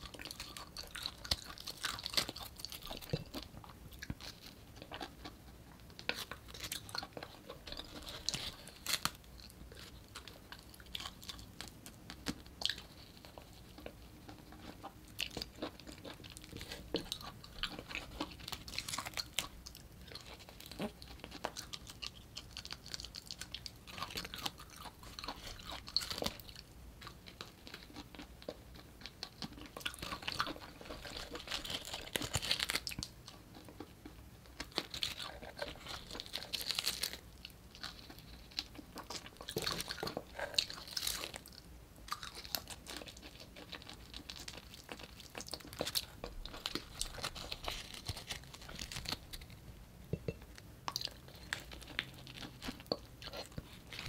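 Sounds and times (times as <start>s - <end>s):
person chewing: 0.0s - 54.0s
wet mouth clicks: 50.1s - 50.5s.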